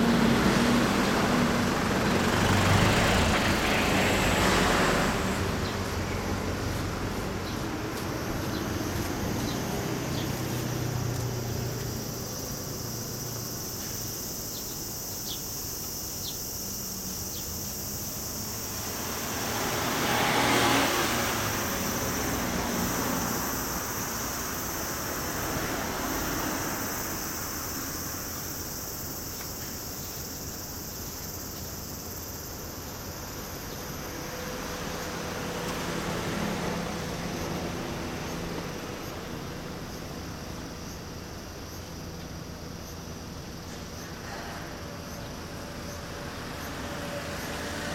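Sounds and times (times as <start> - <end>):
vehicle passing by: 0.0 - 13.6, 16.8 - 28.3, 33.8 - 39.9, 44.2 - 47.9
high-pitched insect drone: 7.4 - 35.6.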